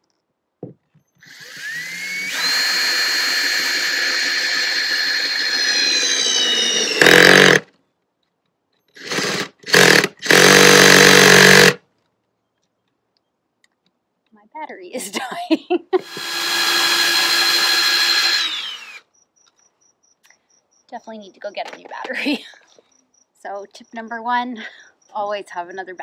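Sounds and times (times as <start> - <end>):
cordless drill boring into wood: 1.2 - 7.7, 9.0 - 11.8, 16.0 - 19.0.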